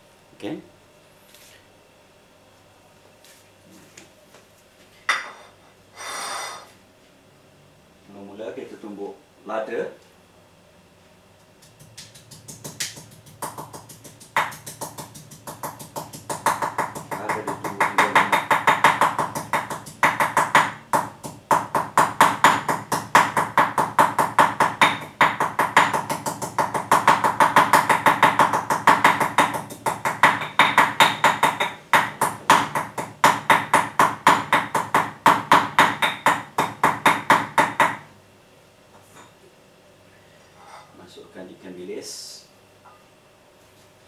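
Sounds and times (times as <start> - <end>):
pestle pounding in stone mortar: 11.7 - 38.1.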